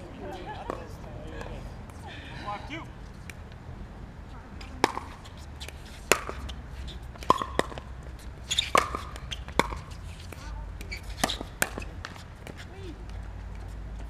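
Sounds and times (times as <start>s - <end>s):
ball bouncing on court: 4.7s - 13.7s.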